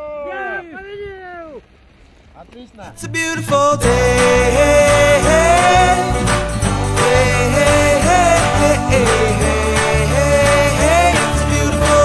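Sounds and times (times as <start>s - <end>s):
bass line: 3.3s - 12.0s
song with wavering lead melody: 3.8s - 12.0s.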